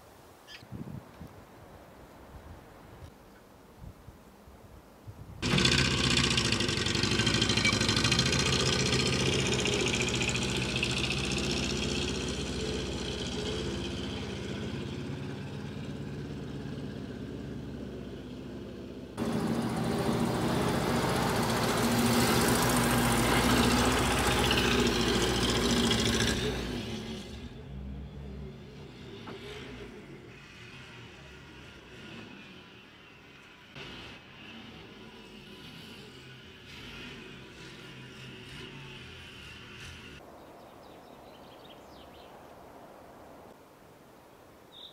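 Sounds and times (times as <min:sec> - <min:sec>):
truck engine starting and running: 0:05.4 - 0:40.2.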